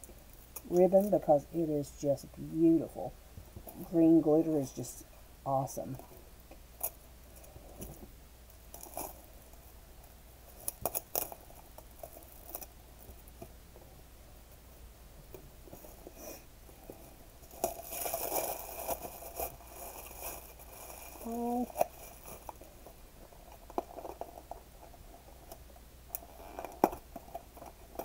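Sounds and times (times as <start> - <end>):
gift wrap rustling and crinkling: 6.8 - 9.7, 10.4 - 13.3, 15.6 - 25.6.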